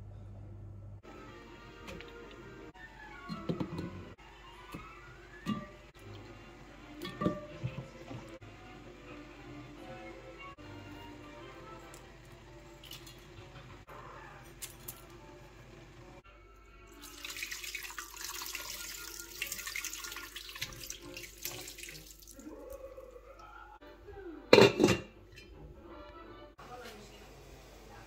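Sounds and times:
pot lid clanking: 0:05.5 - 0:05.9, 0:07.0 - 0:08.2, 0:24.5 - 0:25.5
water pouring and splashing into pot: 0:12.8 - 0:13.2, 0:16.9 - 0:22.7.

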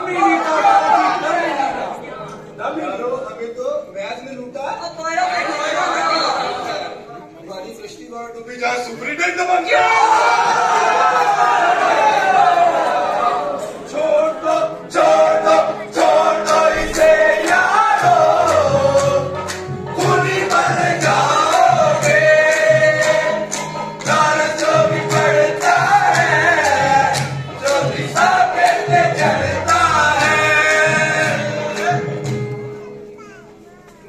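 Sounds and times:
male chorus singing: 0:00.0 - 0:01.9, 0:09.7 - 0:32.4
rhythmic hand clapping: 0:15.4 - 0:32.7.

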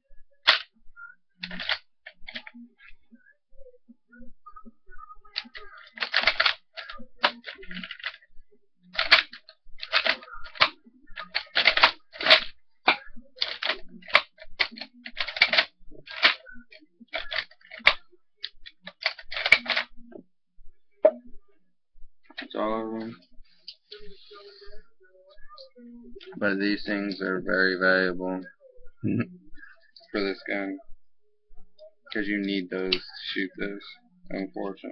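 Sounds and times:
rifle bolt clicks and clacks: 0:09.0 - 0:16.4.

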